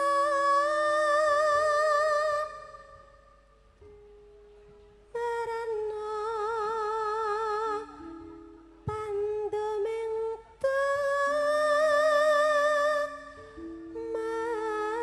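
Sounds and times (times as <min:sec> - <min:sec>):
woman singing long vibrato notes: 0:05.1 - 0:15.0.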